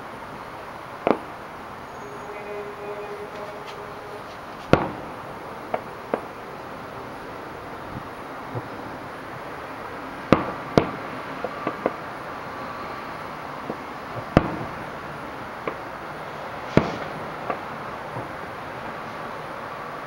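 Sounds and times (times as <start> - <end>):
steady hiss: 0.0 - 20.0
fireworks bursting with bangs: 1.9 - 9.6, 10.2 - 12.6, 13.7 - 14.9, 16.6 - 18.3
faint firework pops: 16.7 - 17.6.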